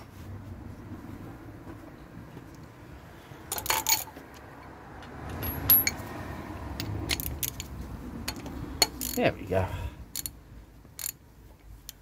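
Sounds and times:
metal hand tools clinking: 5.3 - 6.1, 8.3 - 9.4.

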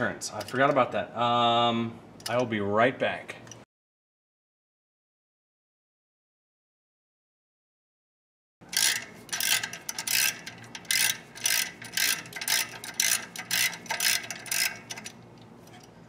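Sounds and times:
ratchet wrench clicking: 8.6 - 15.9.

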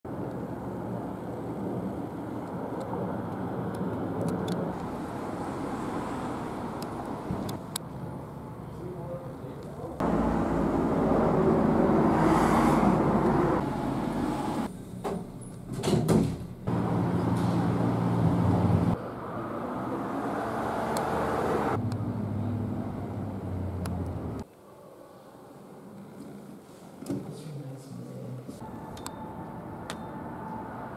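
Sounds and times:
road noise: 0.0 - 15.0, 16.5 - 24.5, 28.5 - 30.9
vehicle engines running: 10.0 - 14.7, 16.7 - 19.0.

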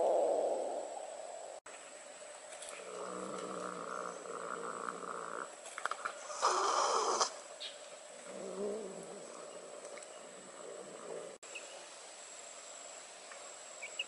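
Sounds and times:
cat growling: 2.9 - 5.5.

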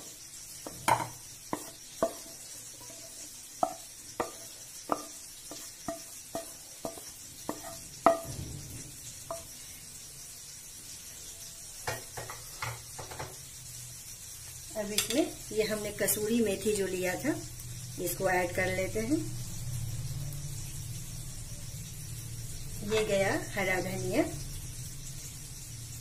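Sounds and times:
wooden spatula tapping pan: 0.6 - 8.4.

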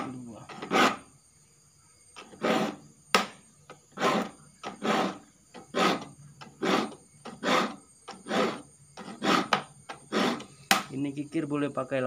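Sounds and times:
file rasping on saw teeth: 0.5 - 1.1, 2.2 - 2.8, 3.9 - 10.5.

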